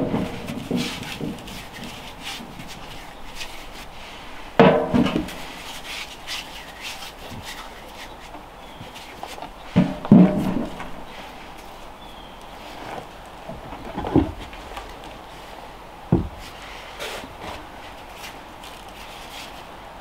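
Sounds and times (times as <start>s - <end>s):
potatoes rubbing and shuffling: 0.0s - 20.0s.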